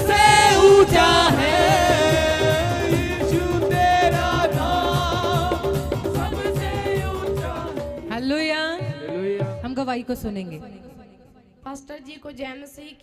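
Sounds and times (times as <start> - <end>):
person singing melody: 0.0 - 7.6
steady drum beat: 0.0 - 9.8.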